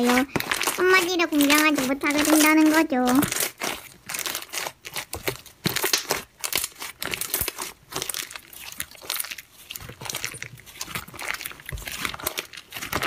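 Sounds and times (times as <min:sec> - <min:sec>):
slime clicking and popping: 0:00.0 - 0:13.0.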